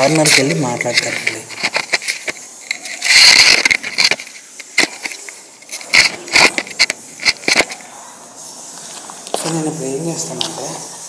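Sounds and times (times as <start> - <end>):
rustling: 0.0 - 7.9.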